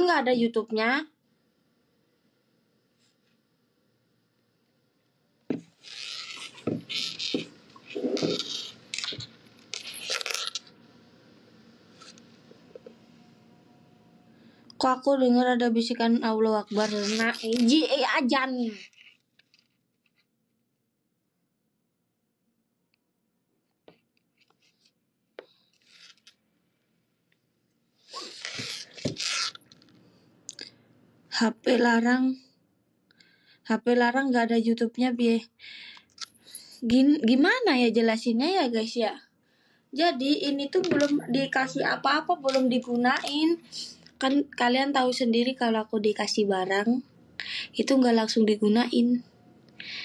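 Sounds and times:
microphone handling rubbing and rustling: 5.5 - 10.3
small objects being rummaged: 8.0 - 10.7.

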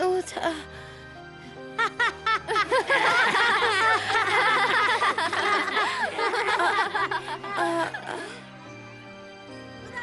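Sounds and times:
children laughing and giggling: 1.8 - 8.2.

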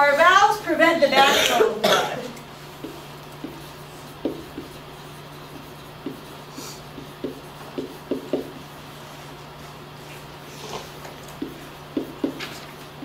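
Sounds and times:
steady low hum: 0.0 - 13.0
marker squeaking on whiteboard: 2.8 - 8.7, 10.6 - 13.0.

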